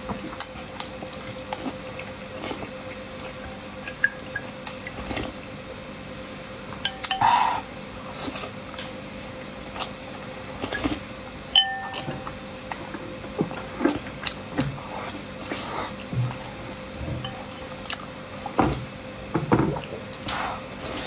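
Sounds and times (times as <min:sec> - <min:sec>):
metal spoon clinking on ceramic bowl: 0:06.9 - 0:07.3, 0:11.6 - 0:12.2.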